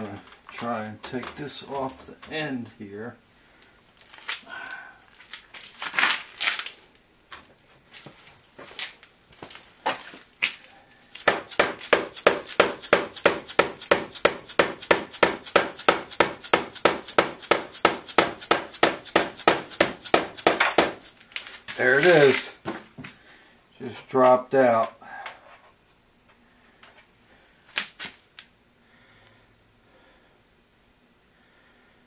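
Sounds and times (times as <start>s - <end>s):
hammer tapping on metal: 11.2s - 21.1s.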